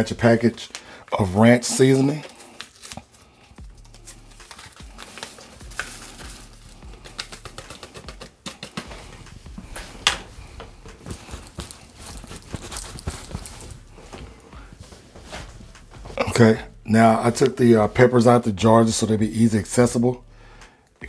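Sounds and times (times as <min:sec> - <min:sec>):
paper packet crinkling and shaken: 0:00.0 - 0:15.6.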